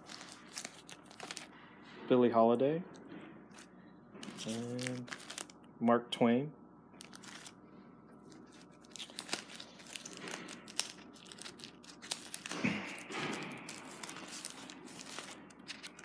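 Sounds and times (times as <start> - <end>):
plastic sleeves and paper crinkling: 0.0 - 1.6, 3.5 - 5.6, 7.0 - 7.6, 8.2 - 16.0.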